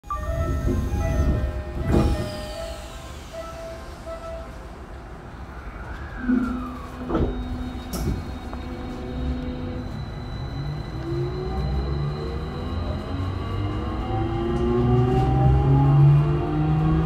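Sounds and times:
train clunks: 0.1 - 4.6, 6.3 - 10.1
traction motor whine: 0.2 - 4.2.

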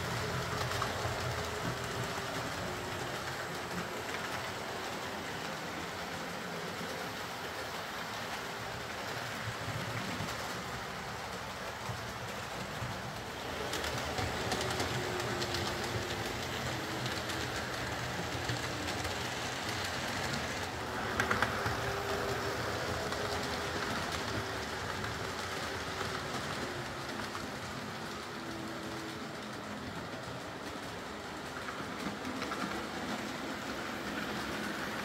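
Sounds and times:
wheels clicking over rail joints: 0.0 - 35.0.

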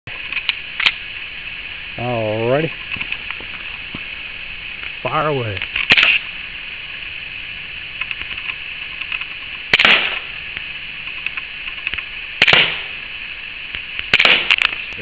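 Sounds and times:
air pistol shots: 5.8 - 6.2, 9.7 - 10.3, 12.4 - 13.0, 14.0 - 14.7.

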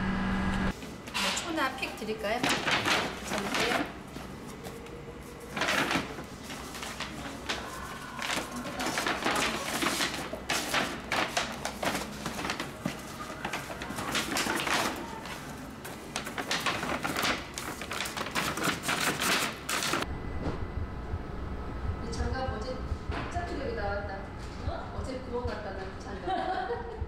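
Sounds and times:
paper bag rustling and crinkling: 2.4 - 20.0.

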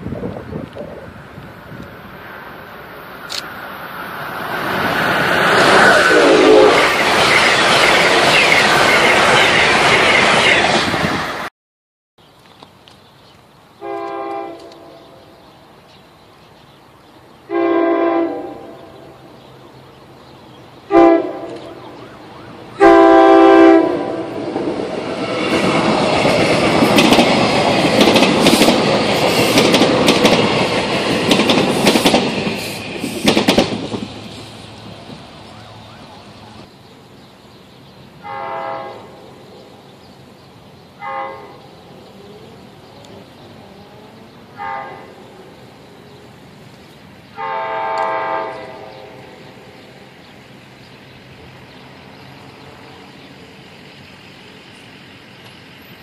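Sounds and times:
train wheels rushing on rails: 0.0 - 11.5, 13.8 - 37.4, 38.0 - 56.0
train horn blasts: 5.9 - 6.9, 13.8 - 15.2, 17.5 - 19.0, 20.9 - 21.8, 22.8 - 24.4, 38.2 - 39.2, 41.0 - 41.6, 44.5 - 45.2, 47.3 - 49.3
wheels clacking over rail joints: 24.3 - 35.6.

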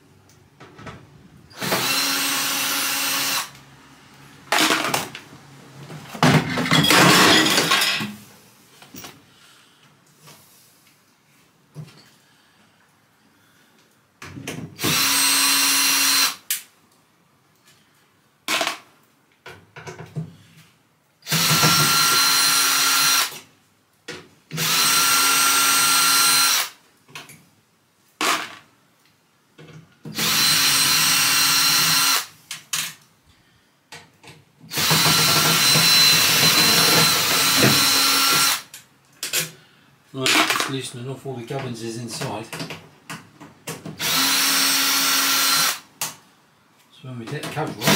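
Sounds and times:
cordless drill running: 1.5 - 3.6, 14.8 - 16.4, 21.2 - 23.4, 24.5 - 26.8, 30.1 - 32.3, 34.7 - 38.7, 44.0 - 45.8.

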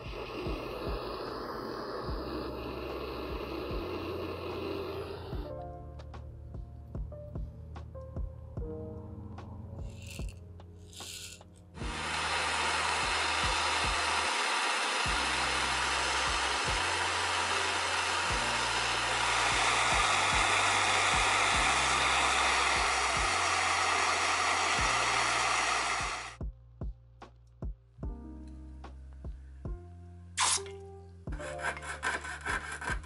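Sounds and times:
soldering torch flame hissing: 0.0 - 5.5, 11.0 - 26.4.

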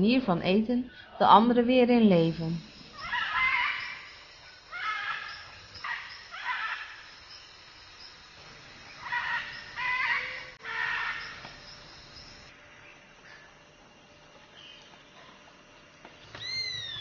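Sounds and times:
macaws squawking: 2.9 - 7.1, 8.9 - 11.6.

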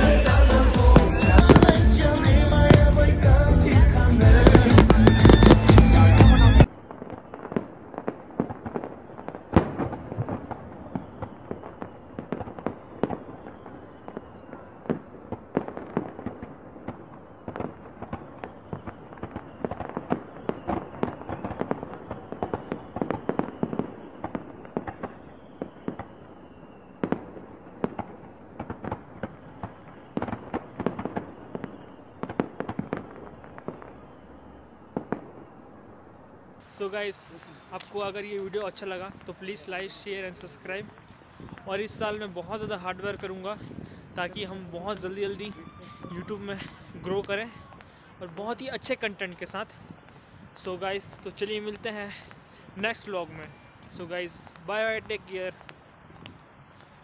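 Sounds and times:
sharp firework bang: 0.0 - 34.2, 36.6 - 48.2
fireworks crackling and banging: 0.0 - 57.0
faint falling whistles: 0.6 - 2.2, 10.6 - 15.1, 17.3 - 28.2, 31.0 - 32.4, 33.0 - 36.8, 53.3 - 54.2.

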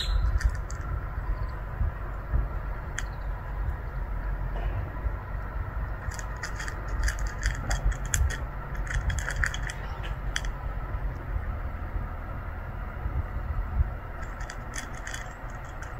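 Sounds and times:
low rumble: 0.0 - 15.9
cat chewing and crunching food: 6.0 - 10.6, 14.2 - 15.9.

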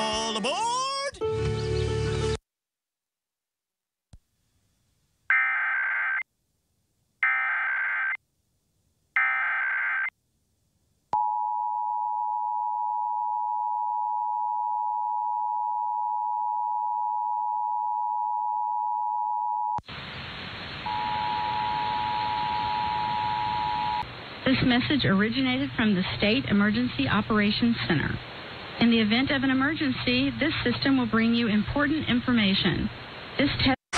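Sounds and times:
steady hiss: 19.8 - 33.7
two-tone attention signal: 20.9 - 24.0.

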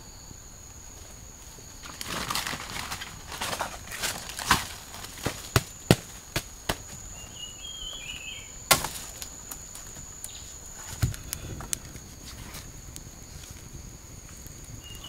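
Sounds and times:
insect drone: 0.0 - 15.0
bare feet in dry leaves: 1.0 - 11.2
basket cracks and knocks: 1.8 - 7.0, 8.7 - 9.9
bird chirping: 7.0 - 8.7, 14.8 - 15.0.

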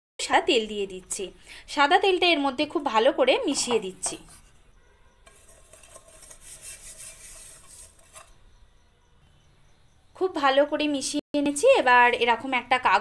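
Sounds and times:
fingers rubbing on metal pan: 5.3 - 8.4.

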